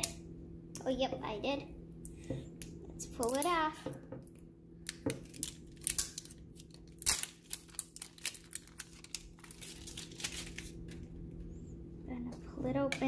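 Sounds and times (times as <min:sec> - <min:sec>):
plastic wrap crinkling and tearing: 0:04.8 - 0:11.1.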